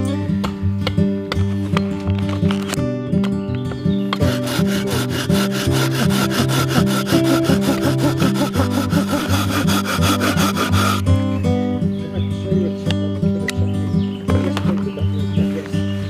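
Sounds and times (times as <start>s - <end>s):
acoustic guitar music: 0.0s - 16.0s
hand saw cutting wood: 4.1s - 11.2s.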